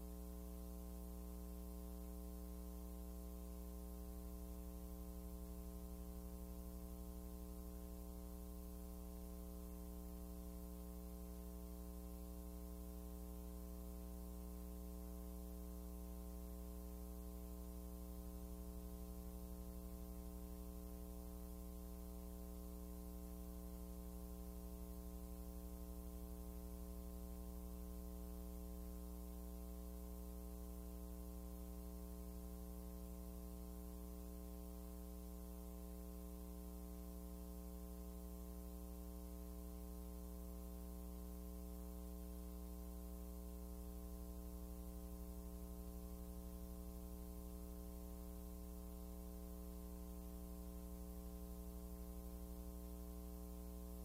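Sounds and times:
electrical mains hum: 0.0s - 54.0s.

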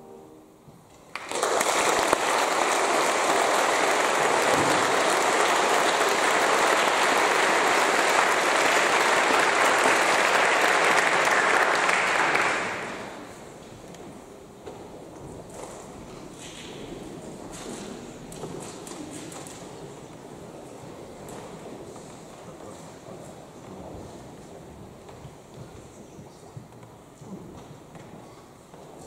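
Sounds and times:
audience applauding: 1.1s - 13.6s.

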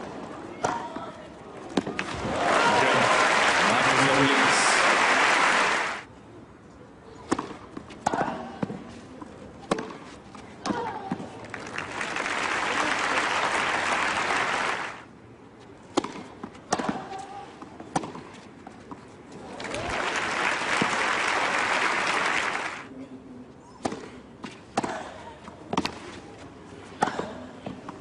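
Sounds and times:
tennis ball bounced and struck: 0.6s - 1.1s, 7.2s - 8.8s, 9.6s - 10.0s, 15.9s - 17.2s
crowd applauding: 2.0s - 6.1s, 11.4s - 15.0s, 19.6s - 22.9s.

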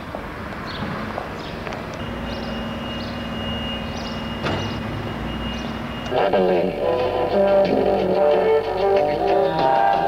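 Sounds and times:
steady hum: 1.8s - 8.7s
short high chirps: 2.0s - 6.2s.

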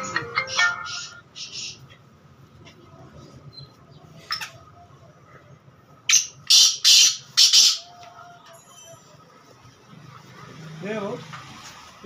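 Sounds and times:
francolin calling: 0.0s - 1.8s.

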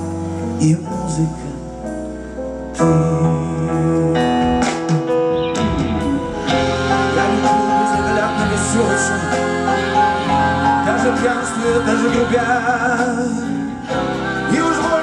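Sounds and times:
live band playing slow ballad: 0.0s - 15.0s
piano: 0.0s - 15.0s
electric guitar: 4.0s - 15.0s.

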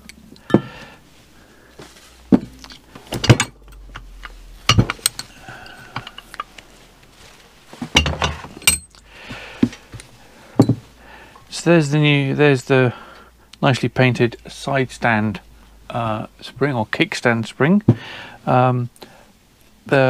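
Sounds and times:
metal tools clinking on workbench: 2.3s - 4.1s, 7.9s - 9.0s.

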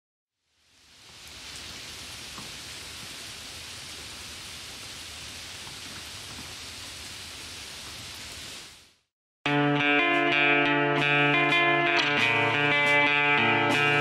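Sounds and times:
rain falling on a puddle: 0.4s - 9.1s
raindrop ticks: 5.5s - 8.1s.

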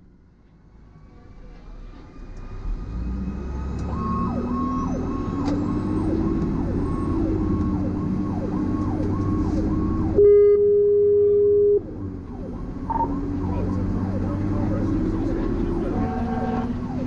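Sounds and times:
truck engine rumbling: 0.0s - 17.0s
lower siren tone: 3.7s - 14.8s
electronic siren sweeping: 3.8s - 11.8s, 12.5s - 14.8s
long horn blast: 10.2s - 11.8s, 15.6s - 16.9s.

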